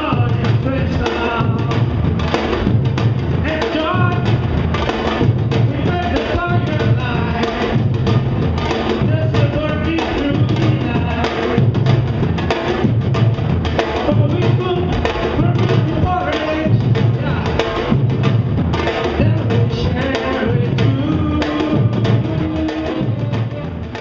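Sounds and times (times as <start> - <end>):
man singing into microphone: 0.0 - 1.9, 3.4 - 4.4, 5.6 - 7.9, 9.0 - 11.7, 14.0 - 17.8, 19.2 - 24.0
bass drums beating: 0.0 - 24.0
hand drum: 0.0 - 24.0
stick drums: 0.0 - 24.0.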